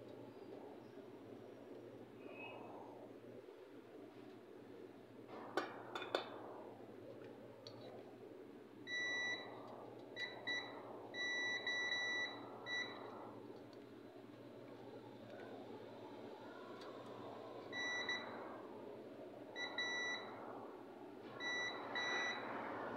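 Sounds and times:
multimeter beeping: 8.9s - 9.5s, 10.2s - 13.1s, 19.6s - 20.3s, 21.4s - 22.4s.

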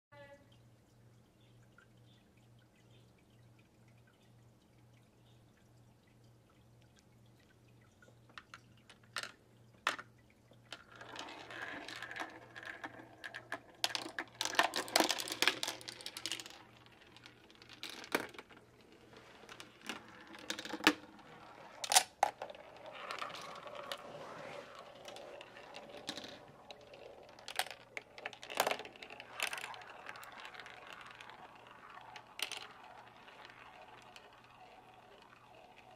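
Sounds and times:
marbles clattering on plastic track: 8.3s - 10.1s, 10.7s - 35.9s.

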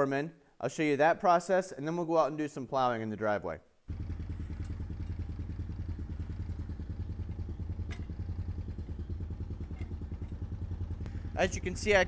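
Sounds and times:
engine idling: 3.9s - 12.0s.

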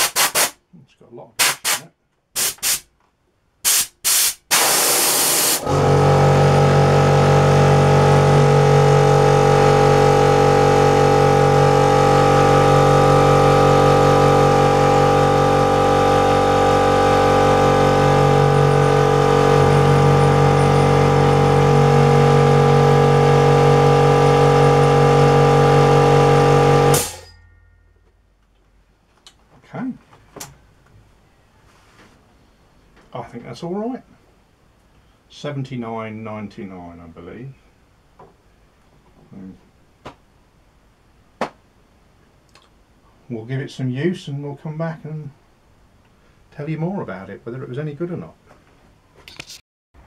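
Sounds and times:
compressed air blasts from blow gun: 0.0s - 0.6s, 1.4s - 2.9s, 3.6s - 5.7s
air compressor motor running: 3.7s - 27.3s.

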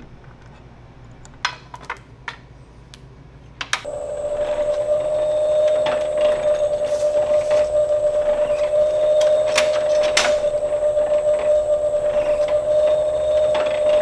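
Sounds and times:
press motor whining rhythmically: 3.9s - 14.0s.

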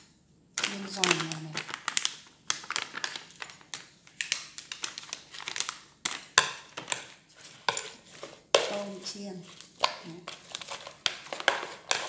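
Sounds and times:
plastic packet crinkling: 0.6s - 12.0s
chopsticks tapping plastic bowl: 6.1s - 9.0s, 9.8s - 12.0s.

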